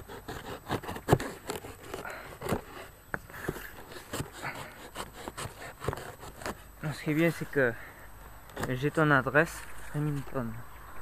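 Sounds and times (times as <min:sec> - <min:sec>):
knife slicing tape and cardboard: 0:00.0 - 0:06.7.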